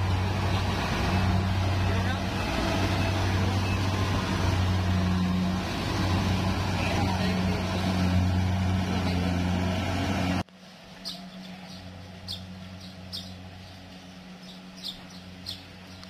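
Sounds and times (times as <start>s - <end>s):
harvester engine running: 0.0s - 16.0s
bird chirping: 11.0s - 16.0s.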